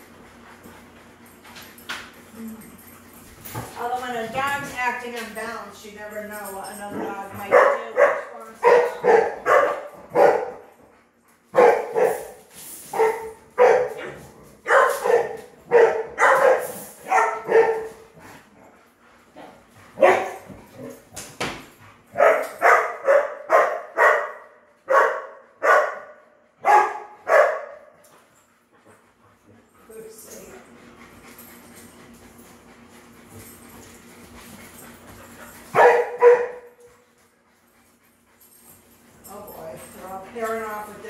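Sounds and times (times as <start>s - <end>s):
dog barking: 7.5s - 10.6s, 11.6s - 12.3s, 13.0s - 14.1s, 14.7s - 17.9s, 20.0s - 20.4s, 22.2s - 27.8s, 35.7s - 36.7s.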